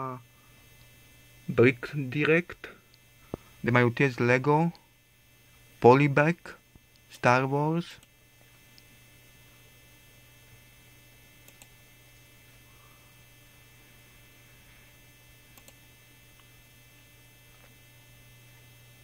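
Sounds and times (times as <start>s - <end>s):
faint electrical hum: 0.0s - 19.0s
computer mouse clicks: 11.4s - 11.7s, 15.5s - 15.8s.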